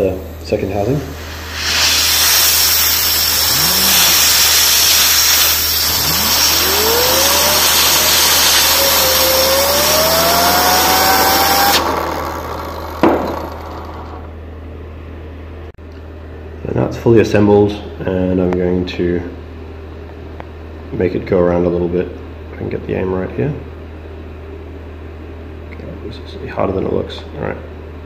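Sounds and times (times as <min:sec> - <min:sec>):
compressed air hissing: 0:00.0 - 0:14.2
turbine whine rising in pitch: 0:00.0 - 0:14.5.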